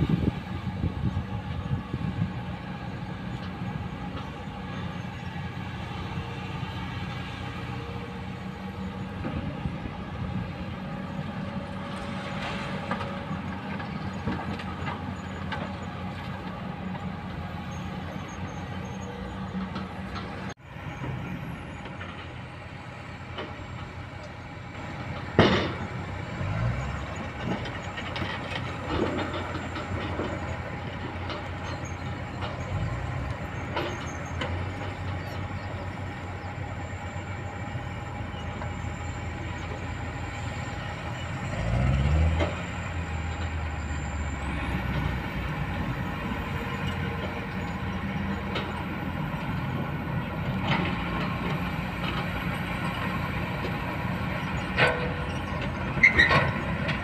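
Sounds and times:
excavator diesel engine running: 0:00.0 - 0:57.0
engine revving: 0:25.4 - 0:30.4, 0:40.3 - 0:57.0.

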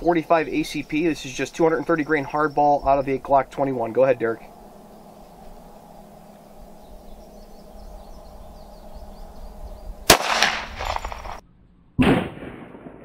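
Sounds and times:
loud bang: 0:10.1 - 0:11.4, 0:12.0 - 0:13.0
pistol shot: 0:10.1 - 0:11.4, 0:12.0 - 0:13.0.

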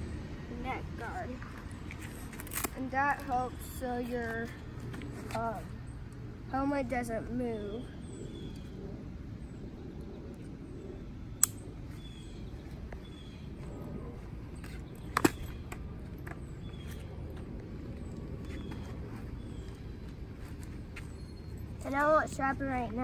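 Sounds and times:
outdoor background noise: 0:00.0 - 0:23.0
sharp clicks of riding gear: 0:11.4 - 0:11.6.

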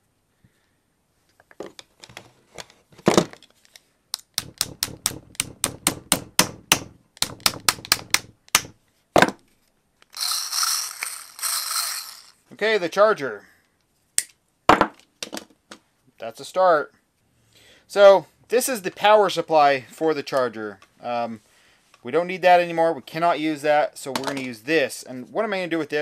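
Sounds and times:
small hammer tapping pins: 0:04.1 - 0:08.8.

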